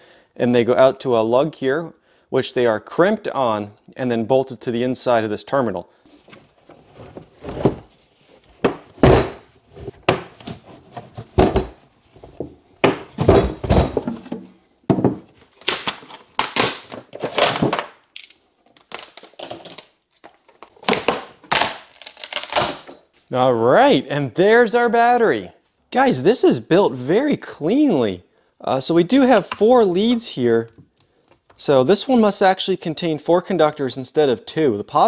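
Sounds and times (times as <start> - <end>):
battery pack thunks and scraping: 6.1 - 7.9, 8.5 - 17.9.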